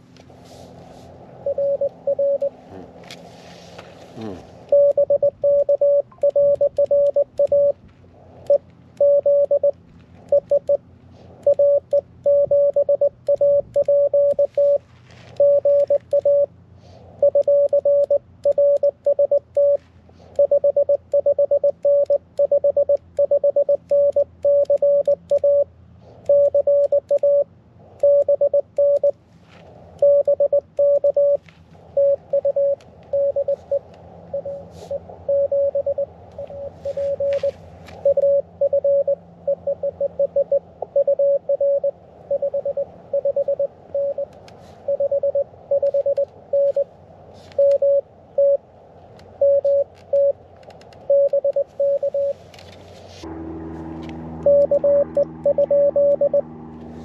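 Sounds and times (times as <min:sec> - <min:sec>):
morse code tone: 0:01.4 - 0:02.6, 0:04.2 - 0:07.8, 0:08.4 - 0:10.8, 0:11.4 - 0:16.5, 0:17.2 - 0:19.8, 0:20.4 - 0:25.7, 0:26.3 - 0:29.2, 0:30.0 - 0:44.3, 0:44.9 - 0:46.9, 0:47.6 - 0:48.6, 0:49.4 - 0:50.4, 0:51.1 - 0:52.4, 0:54.3 - 0:56.5.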